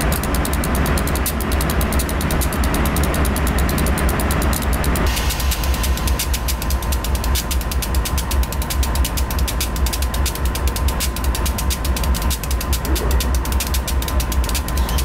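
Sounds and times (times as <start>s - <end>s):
diesel locomotive engine throbbing: 0.0s - 15.0s
fast mechanical clicking: 0.0s - 15.0s.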